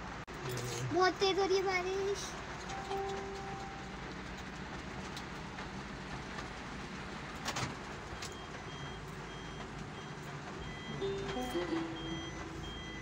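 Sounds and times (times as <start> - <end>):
heavy rain on vehicle: 0.0 - 13.0
road noise: 0.0 - 13.0
faint high beeps: 8.2 - 13.0.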